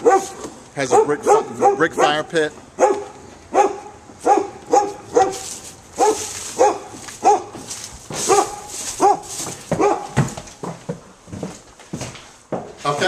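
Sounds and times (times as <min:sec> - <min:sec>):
dog barking: 0:00.0 - 0:07.6, 0:08.2 - 0:10.2.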